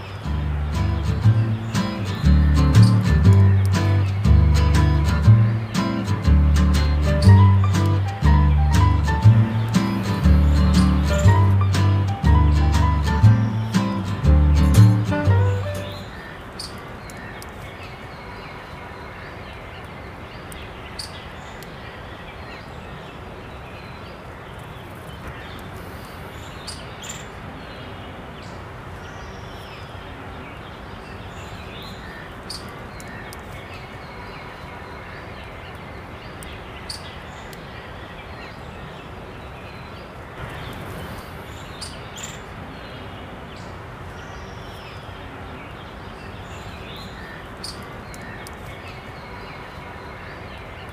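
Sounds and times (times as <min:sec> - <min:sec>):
steady background hiss: 0:00.0 - 0:50.9
soft clicks: 0:47.7 - 0:48.7.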